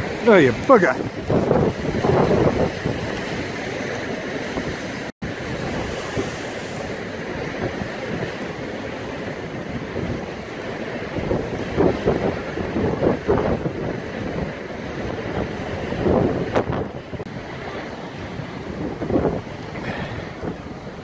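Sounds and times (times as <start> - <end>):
surf pounding sea wall: 0.0 - 21.0
wind buffeting microphone: 0.0 - 21.0.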